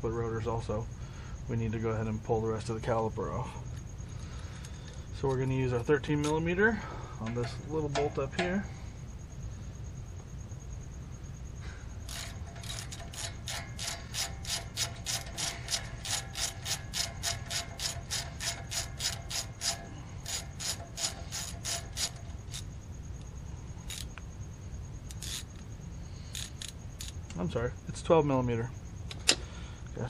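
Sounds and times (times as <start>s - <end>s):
socket ratchet clicking: 12.0s - 22.7s, 23.8s - 24.2s, 25.1s - 25.6s, 26.3s - 27.4s.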